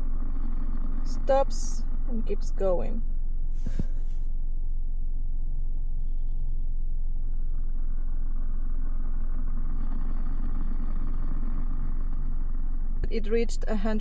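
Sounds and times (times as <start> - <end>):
car engine idling: 0.0 - 14.0.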